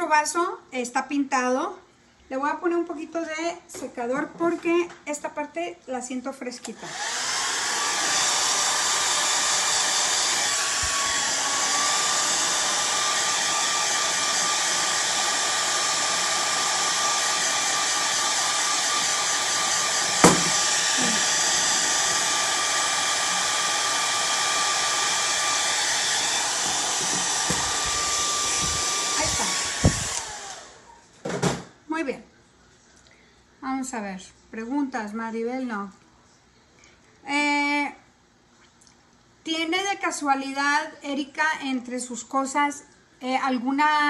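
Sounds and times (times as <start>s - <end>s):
hair dryer running: 6.6s - 30.9s
sharp knock: 20.2s - 20.6s.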